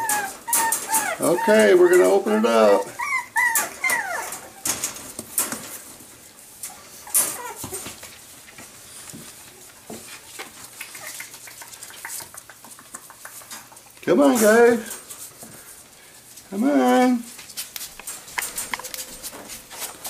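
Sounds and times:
wire crate clicking and rattling: 0.0 - 2.1, 3.4 - 6.0, 18.0 - 19.0
puppies whimpering: 0.0 - 4.8, 7.0 - 7.9
puppies moving about: 0.0 - 20.0.

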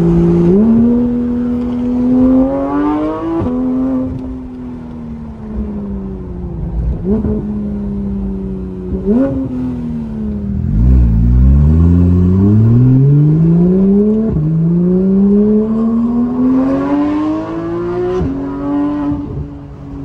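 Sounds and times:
car engine revving: 0.0 - 19.8.

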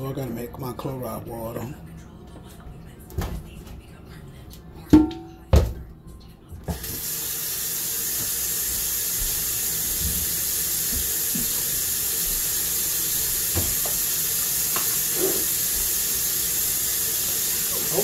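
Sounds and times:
tap running into steel sink: 8.1 - 8.4, 9.1 - 11.8, 13.4 - 14.1, 14.7 - 15.5.

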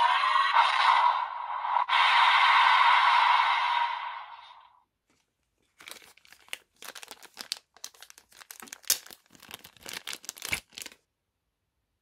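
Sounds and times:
plastic bag crinkling: 5.6 - 11.1.

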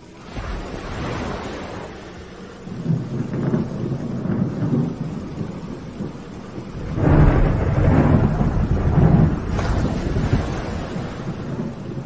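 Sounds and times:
rain: 0.0 - 12.0
rolling thunder: 2.6 - 12.0.

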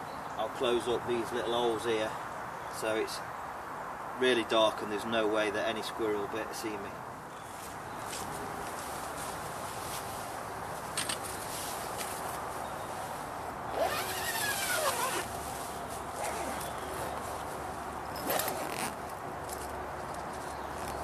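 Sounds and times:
background hiss: 0.0 - 21.0
fabric rustling: 7.5 - 19.0
zipper pulled shut: 13.7 - 15.3, 16.1 - 17.3, 18.1 - 19.1.

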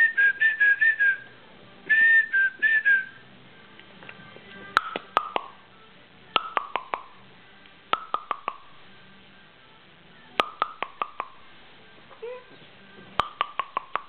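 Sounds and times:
rapid tongue clicks: 6.4 - 7.1, 7.9 - 8.7, 10.4 - 11.4, 13.2 - 14.0.

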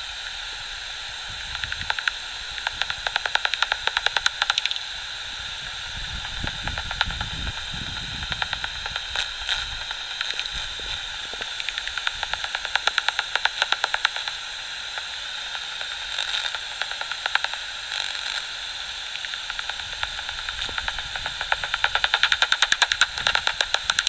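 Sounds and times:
bat detector static hiss: 0.0 - 24.0
bat echolocation clicks: 1.3 - 5.2, 6.0 - 24.0.

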